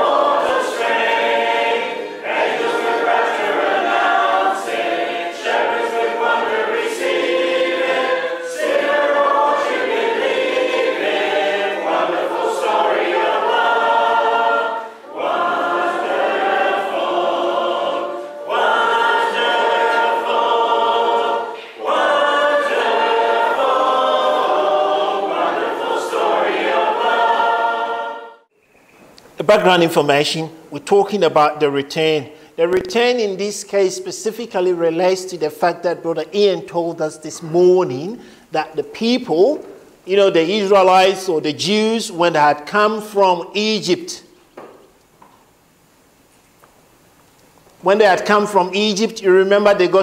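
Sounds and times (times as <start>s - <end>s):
choir singing a cappella: 0.0s - 28.5s.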